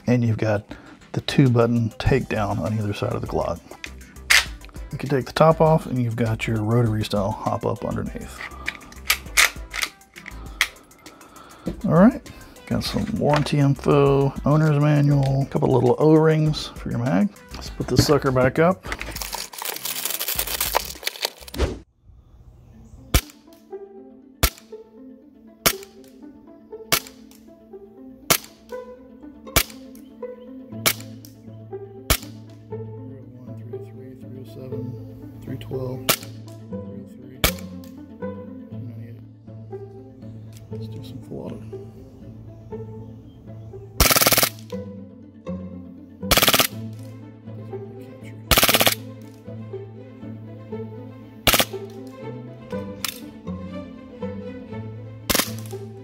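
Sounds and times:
background music: 0.0 - 56.0
airsoft pistol shots: 32.1 - 32.3, 44.0 - 44.6, 46.3 - 46.8, 48.5 - 49.0, 51.5 - 51.8, 55.3 - 55.8.

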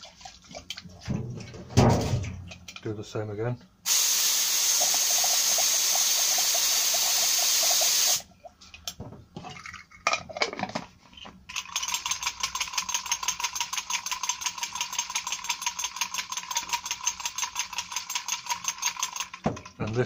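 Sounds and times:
spray gun rattling when shaken: 3.9 - 8.2, 11.5 - 20.0.

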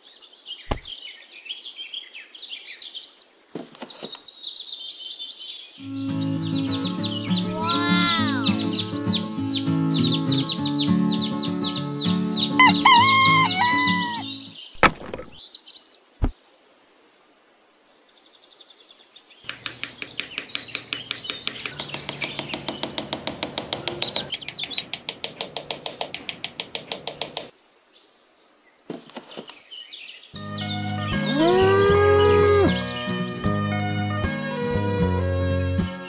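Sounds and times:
bird chirping: 0.0 - 16.4, 18.6 - 36.0
hammer tapping stick: 19.5 - 27.5
cow mooing: 31.1 - 32.8.

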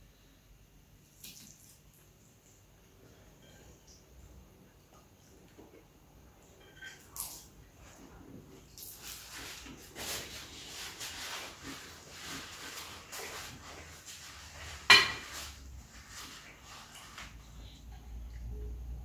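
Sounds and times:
cutlery scraping on plate: 6.6 - 7.2, 14.9 - 15.4.

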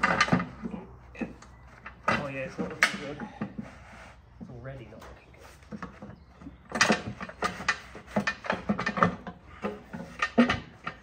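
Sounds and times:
metal clicks and rattles: 0.0 - 0.7, 6.7 - 11.0.

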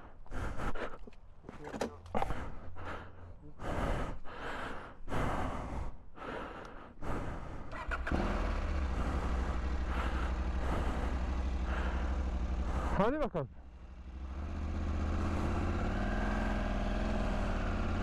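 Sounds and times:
motorcycle engine running: 7.7 - 18.0.

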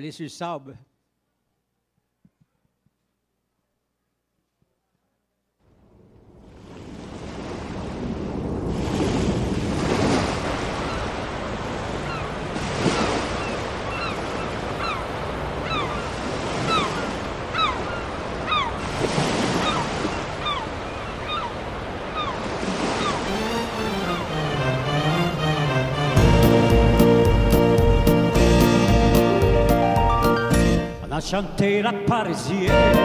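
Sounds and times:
surf breaking: 5.7 - 17.5
seagulls calling: 10.4 - 30.4
song music: 23.3 - 33.0.

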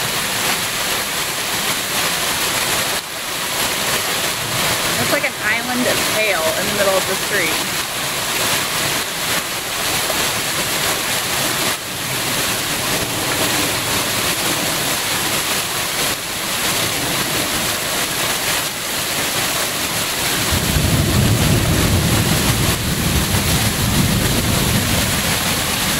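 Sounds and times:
torrential rain and hail: 0.0 - 25.9
wind rumble on microphone: 20.4 - 25.9.

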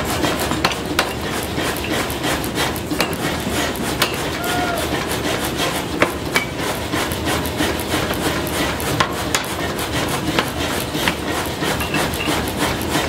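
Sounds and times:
workshop hammering clatter: 0.0 - 13.0
hammer clanking on hot steel: 0.2 - 2.1, 2.7 - 4.4, 5.0 - 6.8, 8.9 - 12.5.

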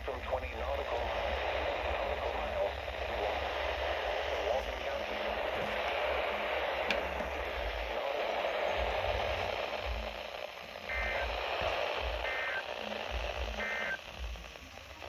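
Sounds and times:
radio static hiss: 0.0 - 15.0
warbling digital data bursts: 7.4 - 14.9.

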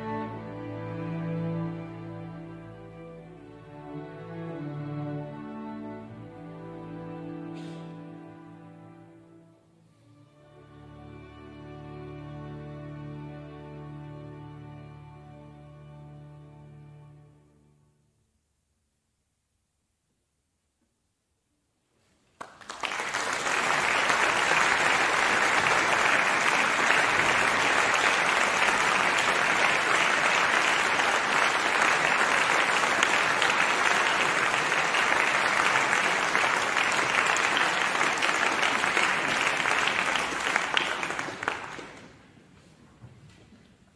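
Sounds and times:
concert audience applauding: 22.3 - 42.4.

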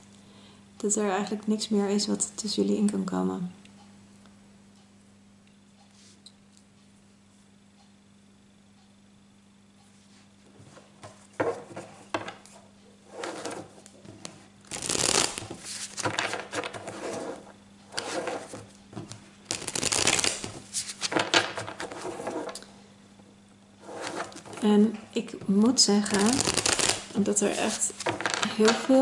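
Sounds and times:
cards being shuffled: 13.2 - 22.6, 26.0 - 29.0.

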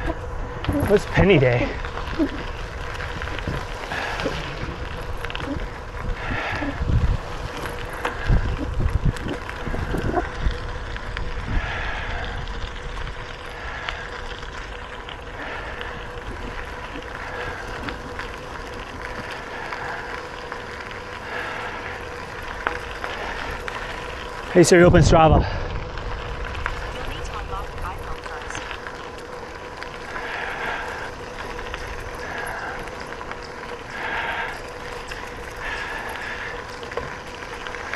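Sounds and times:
bicycle rolling noise: 0.0 - 37.9
wind buffeting microphone: 0.0 - 37.9
faint voices: 26.7 - 29.4.

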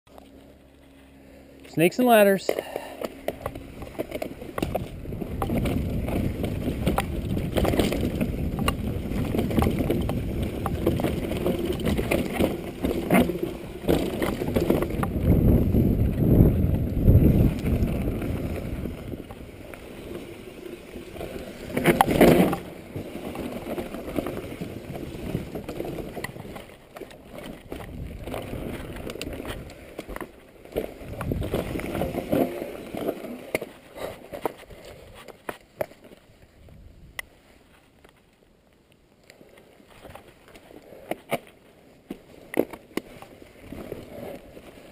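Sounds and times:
bike tyre rumble: 0.1 - 44.9
bike rattling and knocking: 3.1 - 36.1
wind noise on microphone: 4.6 - 13.1, 13.8 - 19.7, 27.6 - 29.8, 31.0 - 32.4, 36.4 - 37.3.

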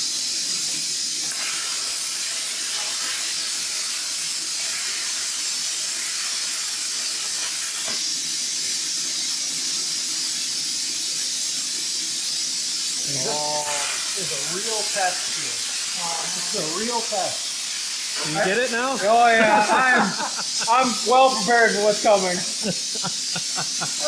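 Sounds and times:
plasma cutter hissing: 0.0 - 24.0.

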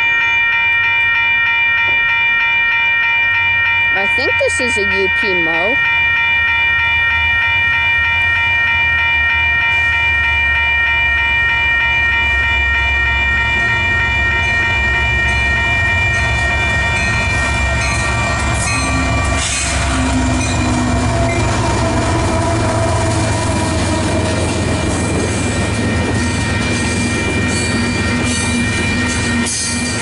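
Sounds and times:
diesel locomotive engines rumbling: 3.9 - 5.9, 11.3 - 30.0
train cars clattering past: 13.4 - 30.0
train air horn: 19.2 - 24.4.

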